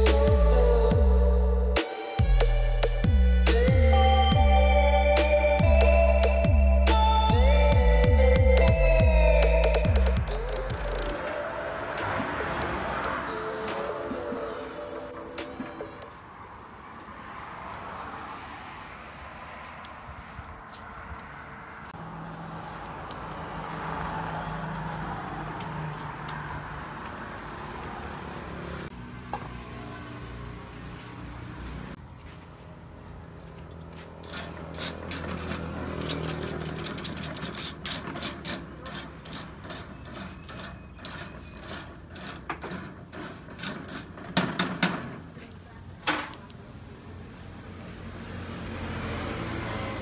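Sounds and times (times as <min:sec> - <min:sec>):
metal tongs stirring charcoal: 0:33.4 - 0:44.7.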